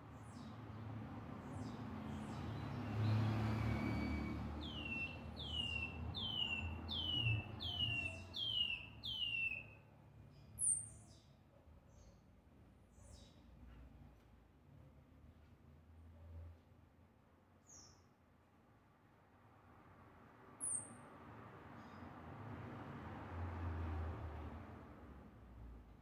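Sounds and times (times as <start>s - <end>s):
bird whistling descending notes: 3.5s - 9.6s.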